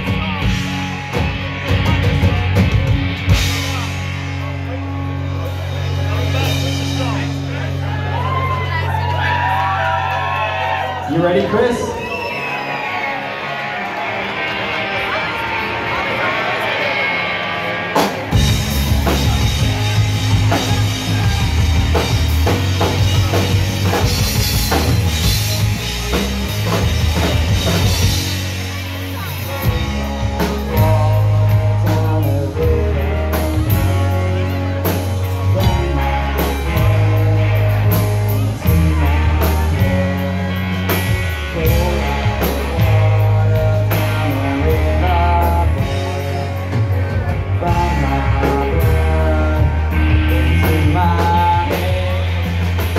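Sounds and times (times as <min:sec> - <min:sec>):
deep bass line: 0:00.0 - 0:11.9, 0:18.2 - 0:52.9
rock band playing live: 0:00.0 - 0:52.9.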